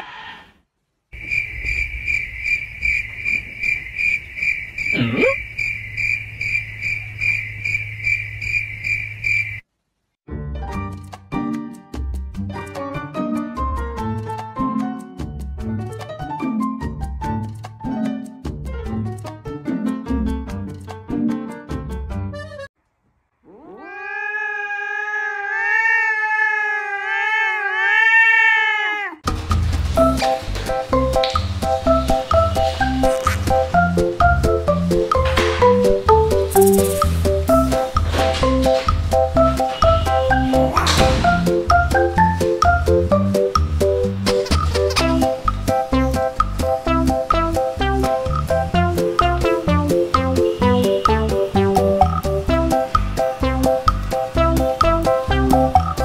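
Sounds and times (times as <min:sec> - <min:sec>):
cricket chirping: 0:01.2 - 0:09.6
cat yowling: 0:23.4 - 0:29.2.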